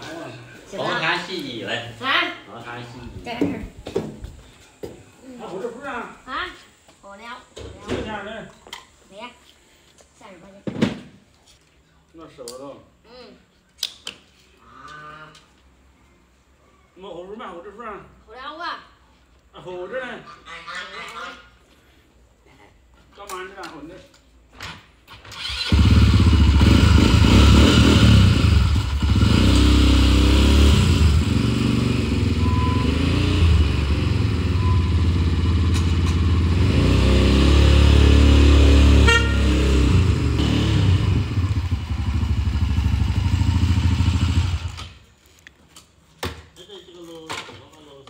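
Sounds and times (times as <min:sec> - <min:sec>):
motorcycle engine revving: 0:25.4 - 0:45.0.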